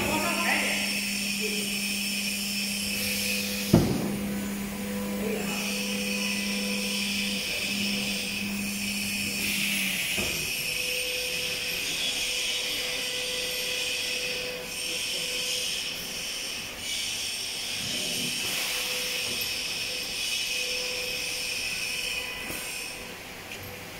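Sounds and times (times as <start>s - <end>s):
low hum: 0.0s - 11.8s
router high whine: 0.0s - 23.9s
sharp knock: 3.7s - 4.1s.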